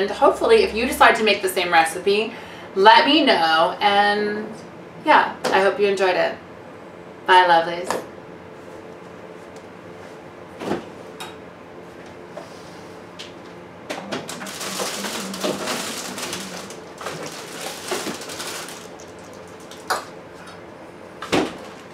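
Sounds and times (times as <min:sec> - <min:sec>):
items clattering and rustling: 0:14.0 - 0:20.6, 0:21.2 - 0:21.9.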